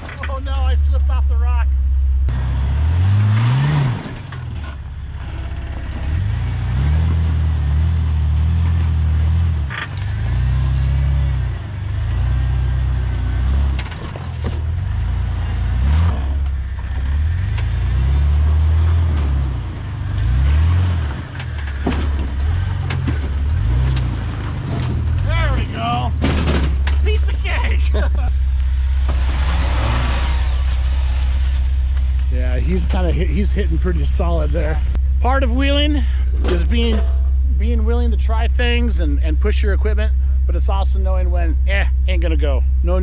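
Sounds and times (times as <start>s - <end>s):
engine revving: 0.0s - 43.0s
sharp knocks: 25.9s - 27.0s.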